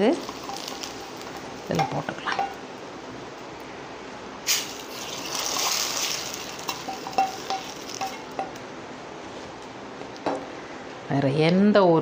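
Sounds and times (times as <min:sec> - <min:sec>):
hot oil sizzling: 0:00.0 - 0:03.6, 0:04.3 - 0:08.8.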